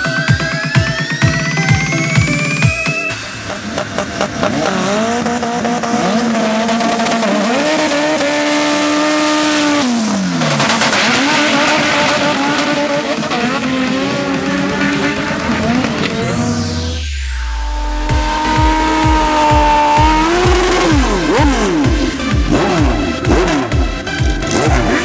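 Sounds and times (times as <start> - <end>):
engine revving high: 1.1 - 25.0
tyres squealing: 18.0 - 24.7.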